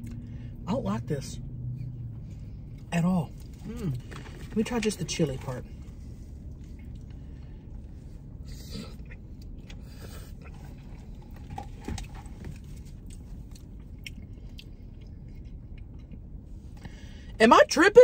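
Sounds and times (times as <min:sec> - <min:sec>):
low steady hum: 0:00.0 - 0:18.0
chewing: 0:08.5 - 0:16.9.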